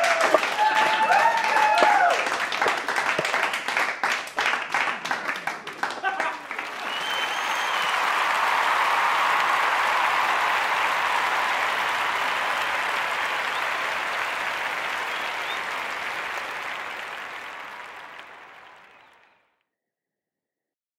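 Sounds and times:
crowd applause: 0.0s - 19.4s.

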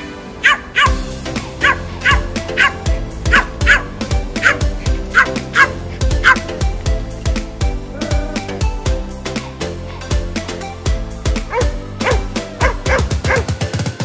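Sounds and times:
background music with steady beat: 0.0s - 14.0s
small dog yapping: 1.6s - 6.4s.

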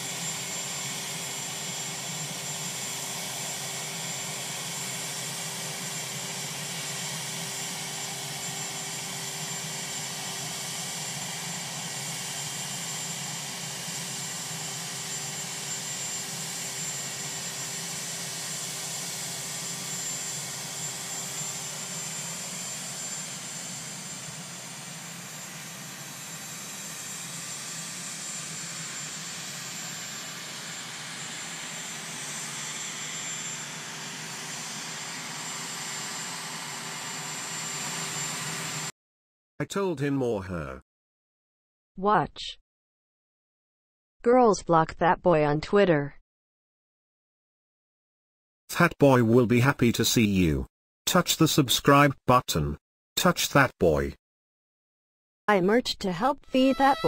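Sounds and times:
helicopter turbine engines running: 0.0s - 38.9s
high turbine whine: 0.0s - 38.9s.

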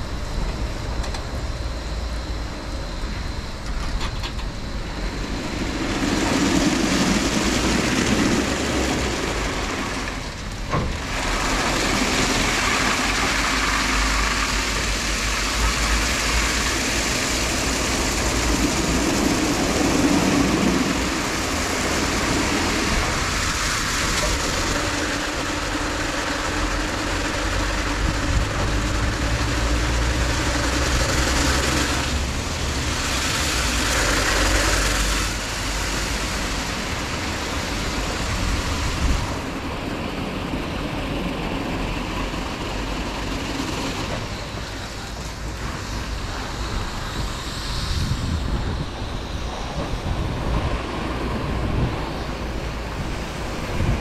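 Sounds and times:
low hum: 0.0s - 54.0s
car wash brushes rotating: 5.4s - 39.5s.

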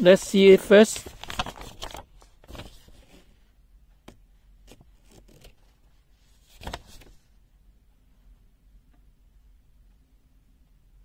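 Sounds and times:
paper rustling and crackling: 0.2s - 3.4s, 4.6s - 7.3s.

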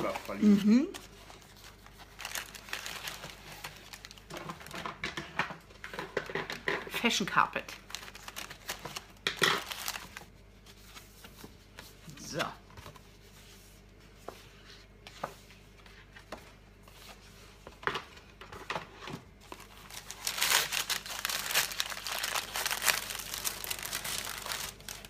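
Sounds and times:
paper packaging crinkling: 0.0s - 5.0s, 7.6s - 11.0s, 19.4s - 25.0s.

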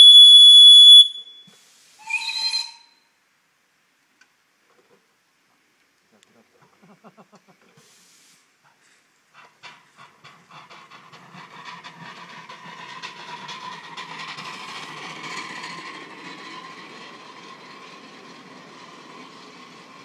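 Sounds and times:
steam locomotive exhaust beats: 0.0s - 2.9s, 9.3s - 20.0s
hiss of steam: 1.4s - 2.8s, 7.6s - 10.2s
train cars clattering on rails: 9.3s - 20.0s.

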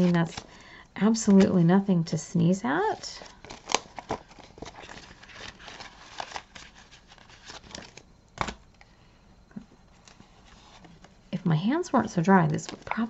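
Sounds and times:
paper banknotes rustling: 3.1s - 8.6s
paper snapping: 8.4s - 8.6s.

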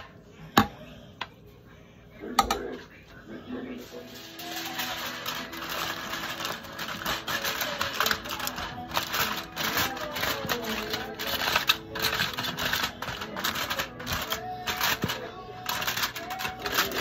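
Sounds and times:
aluminium foil crinkling: 4.0s - 17.0s.

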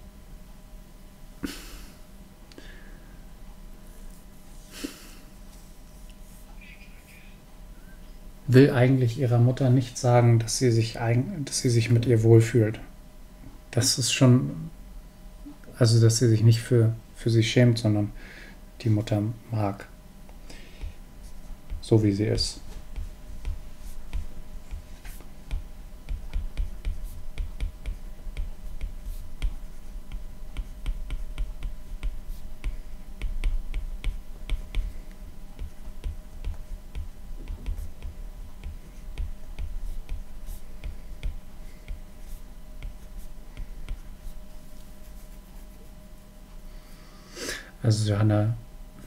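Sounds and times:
stylus tapping on glass screen: 25.5s - 34.9s.

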